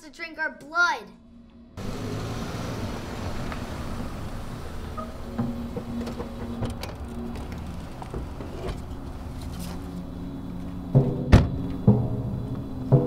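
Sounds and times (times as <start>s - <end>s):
film score music: 0.0s - 13.0s
deep drum hits: 10.9s - 13.0s
car door slamming: 11.0s - 12.3s.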